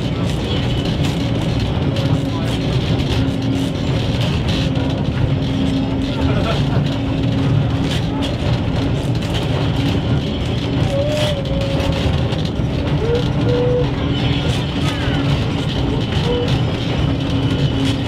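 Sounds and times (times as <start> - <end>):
constant hum: 0.0 - 18.0
tram rumbling on rails: 0.0 - 18.0
wheel squeals: 9.6 - 18.0.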